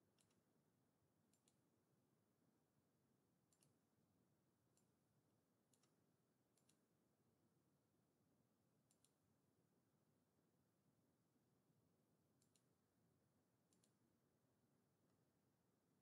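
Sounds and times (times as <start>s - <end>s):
computer mouse clicks: 0.2s - 0.5s, 1.3s - 1.6s, 3.5s - 3.8s, 5.7s - 6.0s, 6.6s - 6.9s, 8.9s - 9.2s, 12.4s - 12.7s, 13.7s - 14.0s.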